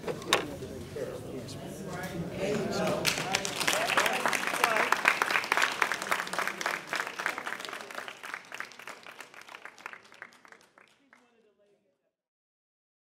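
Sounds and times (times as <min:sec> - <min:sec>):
audience applauding: 0:02.9 - 0:11.5.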